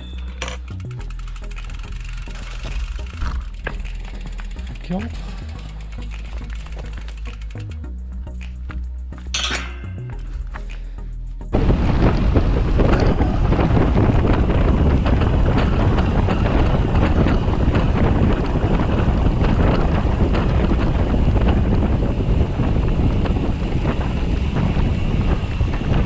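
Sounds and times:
bike tyres rolling on gravel: 0.0 - 8.5, 11.5 - 26.0
clicks and rattles of stones: 0.2 - 7.8
wind buffeting microphone: 11.5 - 26.0.

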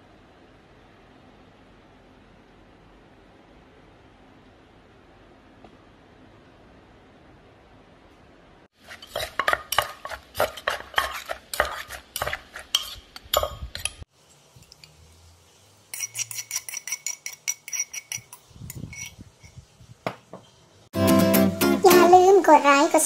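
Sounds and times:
spoon scraping clay mortar: 8.8 - 14.1, 15.9 - 19.6
rapid spoon taps: 9.1 - 14.0.

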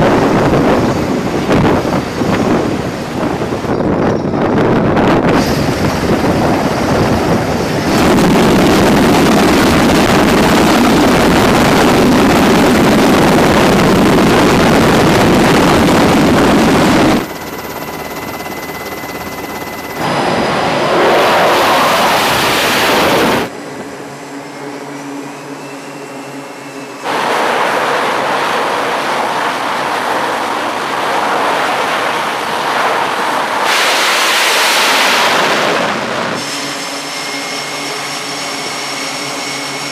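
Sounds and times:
helicopter turbines and rotor: 0.0 - 39.9
jet engines running: 0.0 - 39.9.

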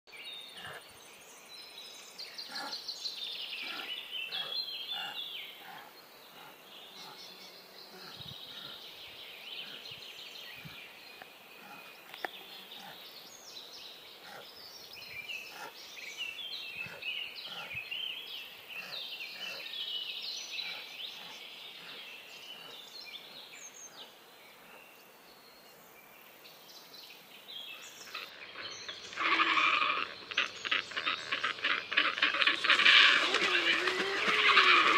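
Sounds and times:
small birds chirping: 0.1 - 34.9
harsh rasping bird call: 28.1 - 34.9.

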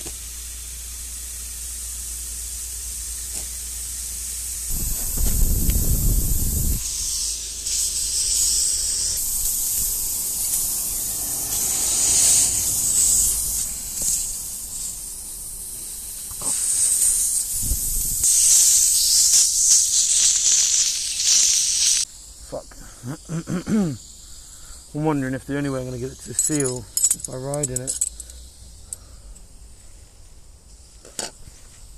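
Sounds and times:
foam spitting: 0.0 - 22.1
air and foam hissing from tyre: 0.0 - 31.9.

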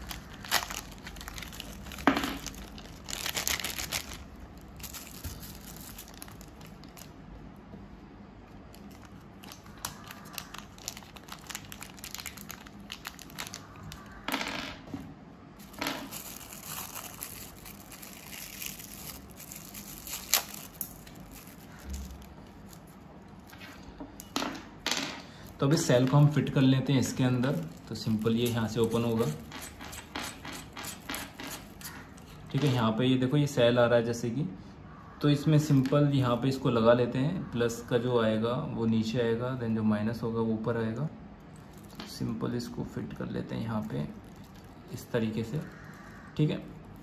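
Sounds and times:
plastic bags crinkling: 0.0 - 7.2, 8.7 - 14.2, 15.6 - 23.5, 25.4 - 32.8, 41.6 - 42.3, 43.7 - 46.0.

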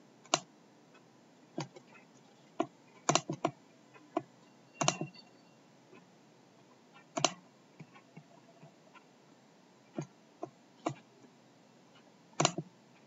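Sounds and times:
mouse buttons clicking: 2.6 - 5.3, 7.1 - 8.3, 12.4 - 12.7.

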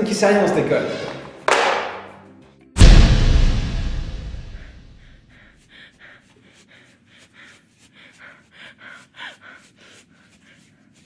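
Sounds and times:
loud low hit: 2.8 - 5.2
person breathing hard: 4.6 - 11.0.

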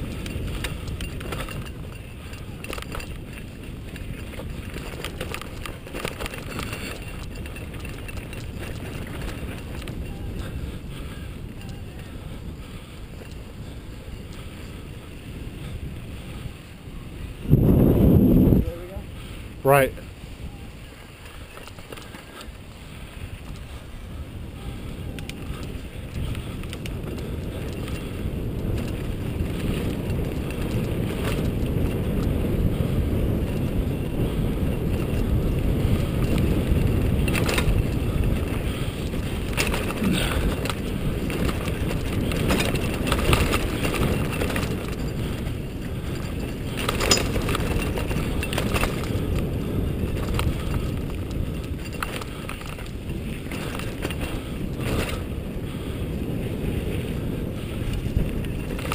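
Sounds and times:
tyres rumbling on dirt: 0.0 - 16.4, 17.2 - 58.9
bike rattling and clanking: 0.0 - 58.9
wind rushing over microphone: 0.0 - 58.9.

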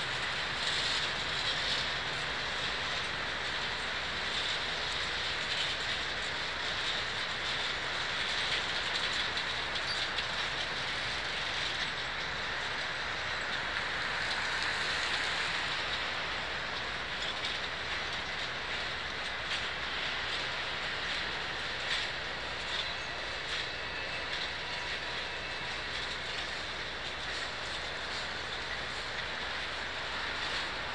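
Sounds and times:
train wheels rushing on rail: 0.0 - 30.9.

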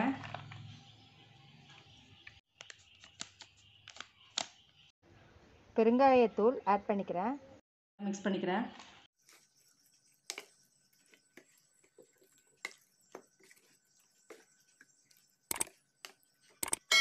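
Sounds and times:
ladle stirring batter in bowl: 9.2 - 16.6.

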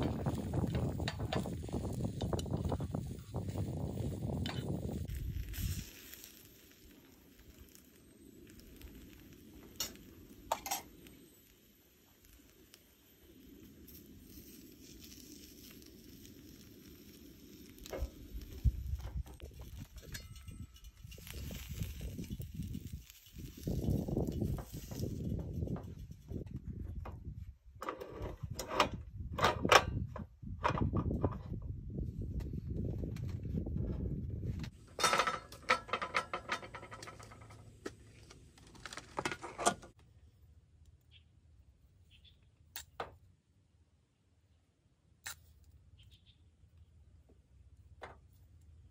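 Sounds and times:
gas stove burner flame: 0.0 - 26.5
tin can clinking and rattling: 34.9 - 37.6.

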